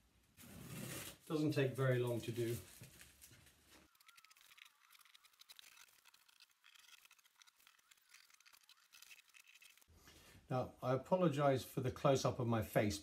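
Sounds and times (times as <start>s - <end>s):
masking tape crackling and rustling: 0.4s - 9.9s.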